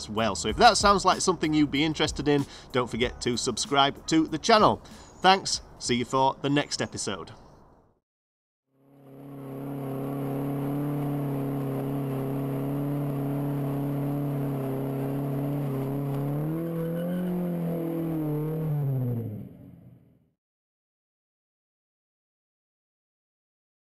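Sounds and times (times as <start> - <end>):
car engine revving high: 8.8 - 20.0.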